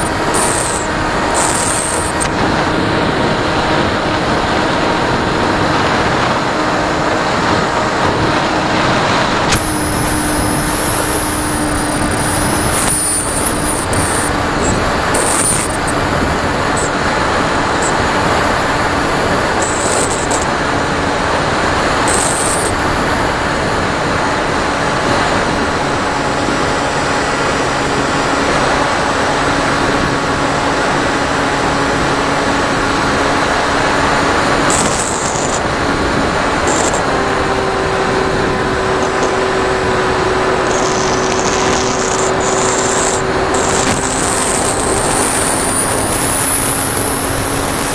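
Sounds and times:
air rushing over microphone: 0.0 - 26.8
electric motor and propeller hum: 0.0 - 47.9.

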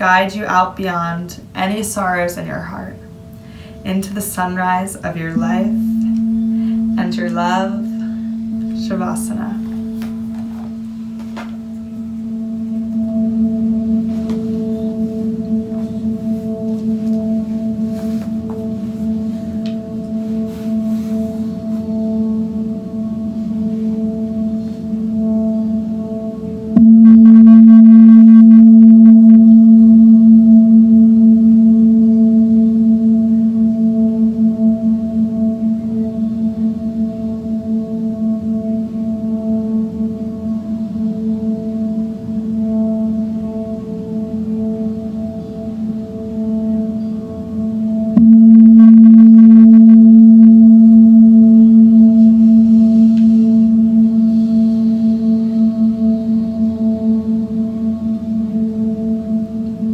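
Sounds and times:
singing bowl ringing: 2.0 - 59.9.

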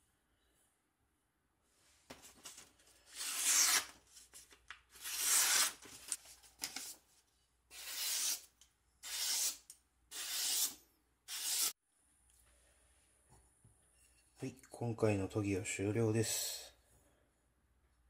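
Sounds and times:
knife slicing through newspaper: 2.4 - 4.0, 5.0 - 6.2, 7.7 - 11.7.

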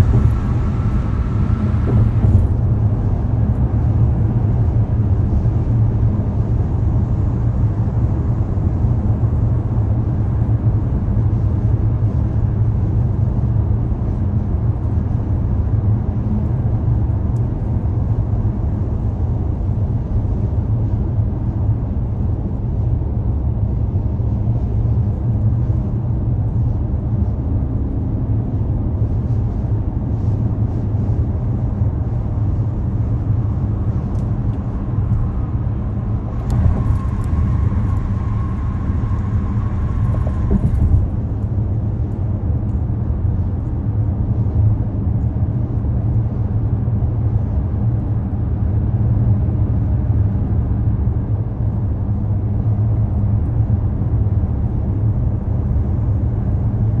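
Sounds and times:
car driving rumble: 0.0 - 6.0, 30.2 - 43.9.

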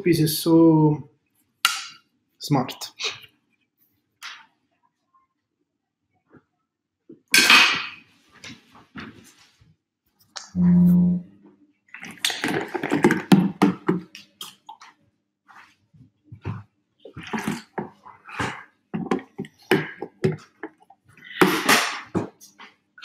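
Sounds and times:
water sloshing in plastic bottle: 11.9 - 14.8, 17.1 - 21.0.

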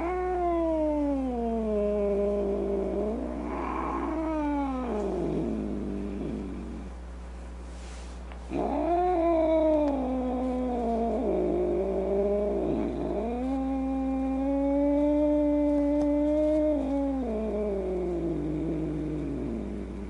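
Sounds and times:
cat yowling: 0.0 - 5.8, 8.5 - 18.4
cat hissing: 0.0 - 6.9, 7.8 - 19.9.

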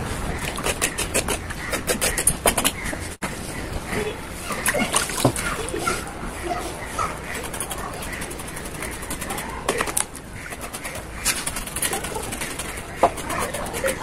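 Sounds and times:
knife scraping hide: 0.4 - 2.8.

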